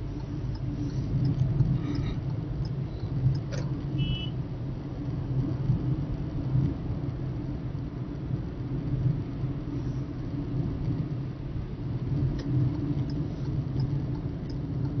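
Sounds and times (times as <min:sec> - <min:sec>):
faint ticks: 0:00.0 - 0:03.8, 0:12.2 - 0:15.0
road rumble: 0:00.0 - 0:15.0
vehicle engine drone: 0:00.0 - 0:15.0.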